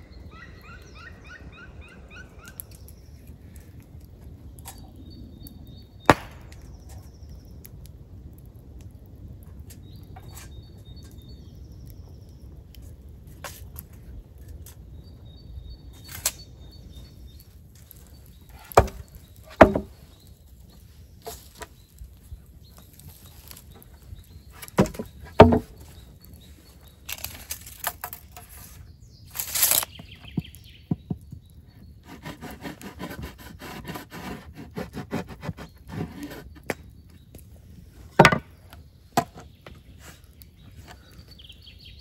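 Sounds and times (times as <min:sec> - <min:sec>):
wooden knocks: 0:18.8 - 0:19.9, 0:24.8 - 0:25.8, 0:38.2 - 0:38.5
small wooden clicks: 0:24.6 - 0:25.8.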